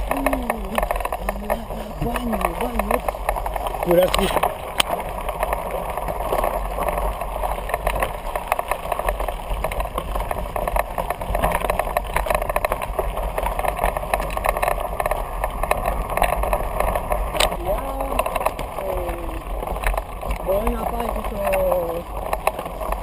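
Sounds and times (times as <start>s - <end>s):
bike tyres crunching on gravel: 0.0s - 17.6s
bike rattling over stones: 0.0s - 23.0s.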